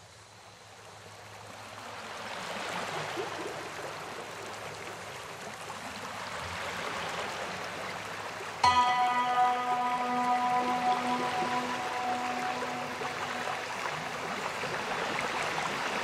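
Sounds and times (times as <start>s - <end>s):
flowing water rushing: 8.6s - 16.0s.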